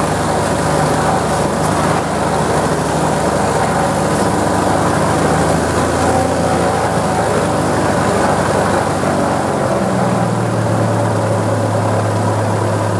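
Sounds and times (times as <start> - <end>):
propeller plane engine drone: 0.0 - 12.9.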